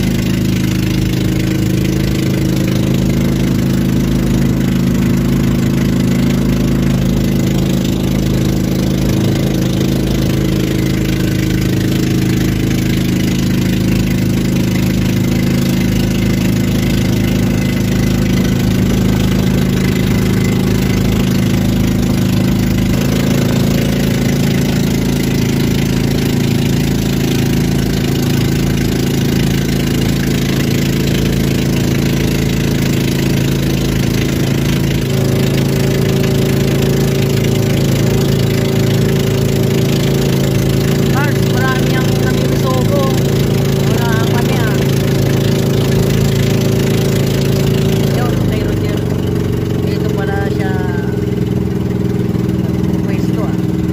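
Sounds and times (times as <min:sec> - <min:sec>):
boat engine running: 0:00.0 - 0:53.9.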